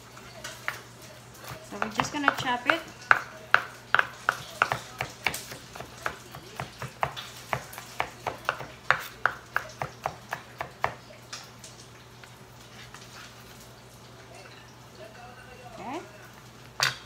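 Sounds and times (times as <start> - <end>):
knife chopping on cutting board: 1.4 - 11.0.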